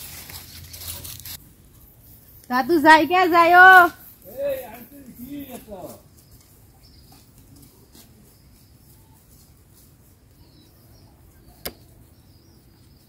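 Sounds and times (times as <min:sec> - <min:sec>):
faint bird chirps: 0:03.9 - 0:13.0
sharp click: 0:11.6 - 0:11.9.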